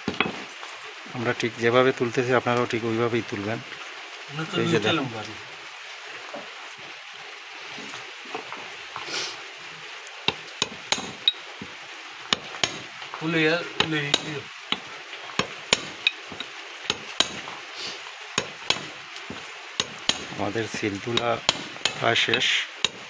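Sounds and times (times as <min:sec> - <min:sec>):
hammer tapping chisel: 0:10.3 - 0:11.4, 0:12.3 - 0:12.8, 0:13.8 - 0:17.4, 0:18.4 - 0:23.0.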